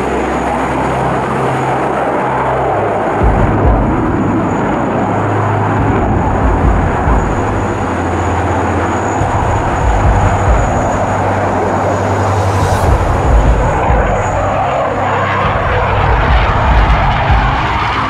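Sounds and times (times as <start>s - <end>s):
fighter jet engine rushing: 0.0s - 18.0s.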